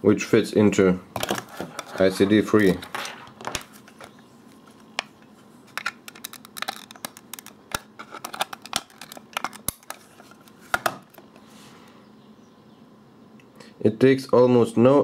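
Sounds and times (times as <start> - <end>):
plastic handling sounds: 1.2 - 11.5.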